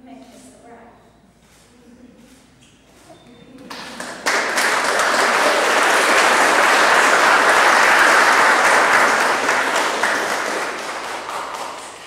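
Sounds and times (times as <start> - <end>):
crowd applauding: 3.7 - 12.0.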